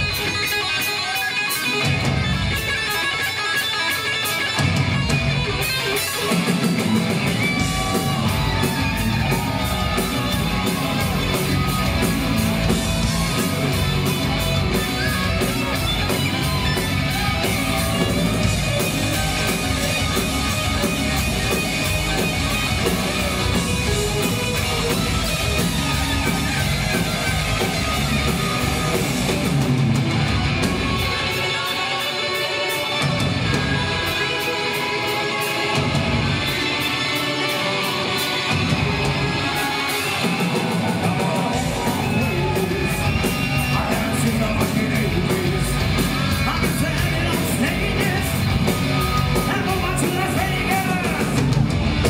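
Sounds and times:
bass guitar: 0.0 - 31.7, 33.0 - 34.9, 35.7 - 36.8, 38.1 - 52.0
steady drum beat: 0.0 - 31.8, 38.2 - 52.0
electric guitars bending notes: 0.0 - 52.0.

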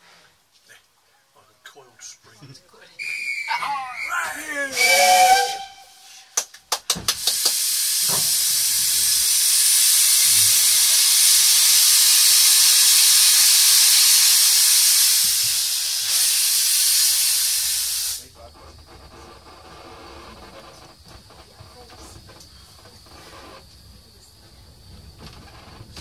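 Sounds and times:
steam locomotive venting steam: 4.1 - 6.4, 7.1 - 26.0.

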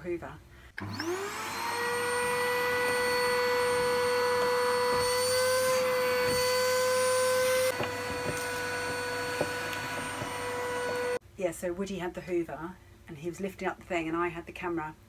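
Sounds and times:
vacuum cleaner motor whining: 0.8 - 11.2.

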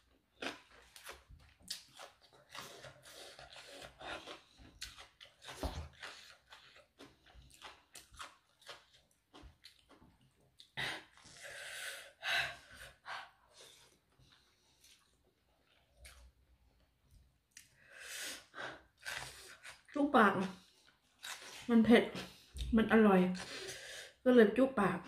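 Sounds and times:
wet chewing and crunching: 0.0 - 11.4, 13.7 - 16.9, 18.7 - 22.7.

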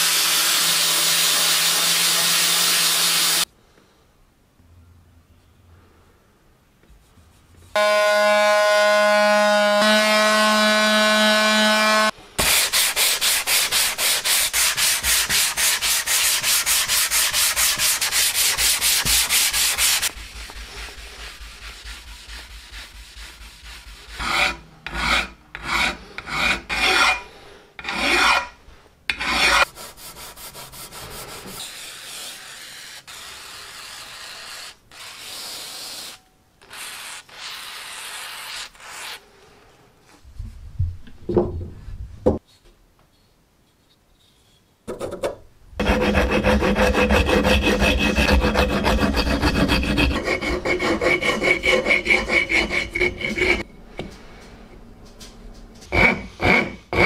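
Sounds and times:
sanding metal with pulsing rasp: 11.8 - 27.2, 29.2 - 36.1, 45.8 - 53.7
abrasive pad rubbing on metal: 12.4 - 25.2, 45.8 - 53.7.

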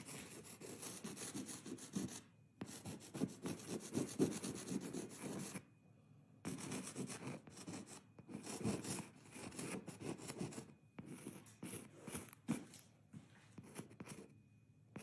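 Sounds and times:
pastel stick scratching on surface: 0.0 - 5.6, 6.5 - 12.6.

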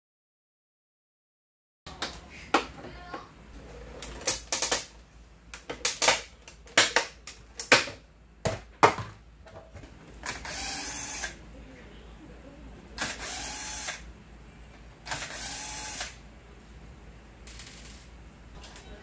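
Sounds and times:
cordless drill whirring: 10.4 - 11.4, 13.0 - 14.0, 15.1 - 16.2.

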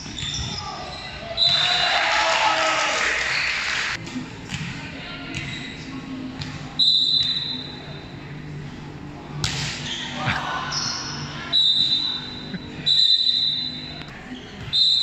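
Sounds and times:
players' voices: 4.0 - 14.8.

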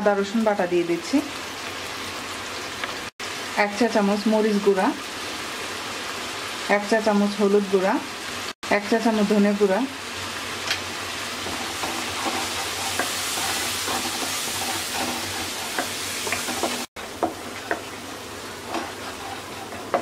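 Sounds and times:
masala sizzling in hot oil: 0.0 - 20.0
wooden spatula scraping pan: 11.4 - 17.9, 18.6 - 20.0.

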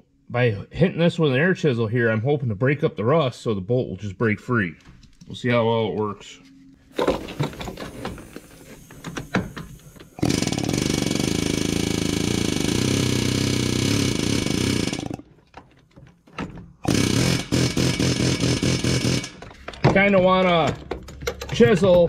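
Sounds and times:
pneumatic air chisel hammering: 7.0 - 15.3, 16.8 - 19.7.

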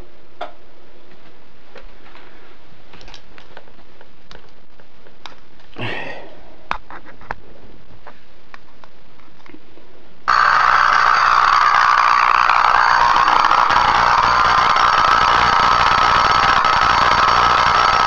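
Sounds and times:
tesla coil sparking buzz: 10.2 - 18.0.

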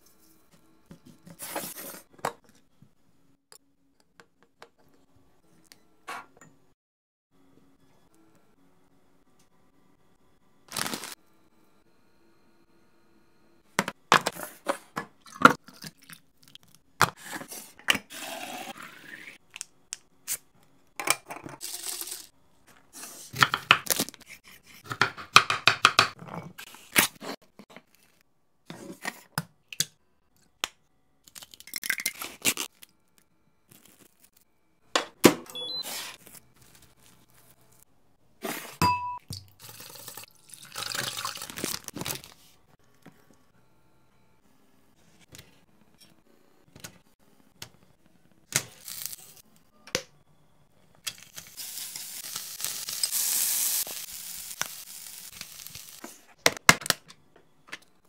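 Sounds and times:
packaging rustling and crinkling: 10.7 - 11.2, 41.4 - 42.5.

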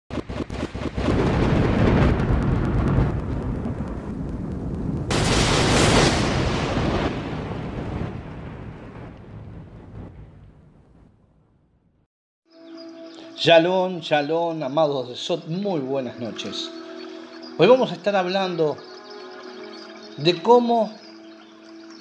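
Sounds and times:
rapid crackle: 0.1 - 10.6
rumbling thunder: 0.7 - 11.7.

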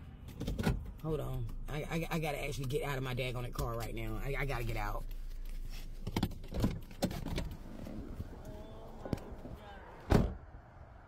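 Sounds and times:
knocks and clicks in car: 0.2 - 1.6
car door shutting: 6.1 - 10.4.

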